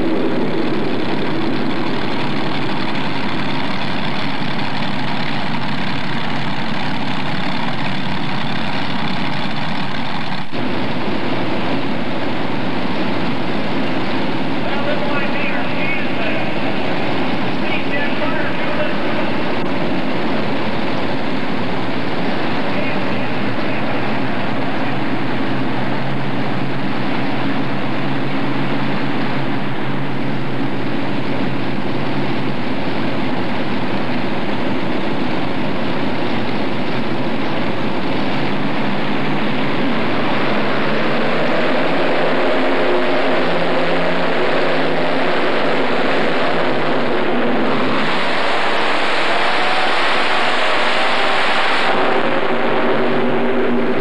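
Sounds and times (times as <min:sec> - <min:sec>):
tractor engines revving: 0:00.0 - 0:54.0.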